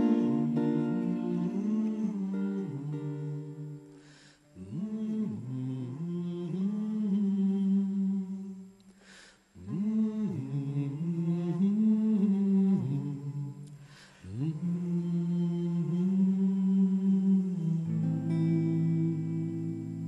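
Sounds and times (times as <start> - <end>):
person singing wordless melody: 0.0 - 8.8, 9.5 - 20.0
singer breathing: 3.9 - 4.6, 8.9 - 9.6, 13.8 - 14.3.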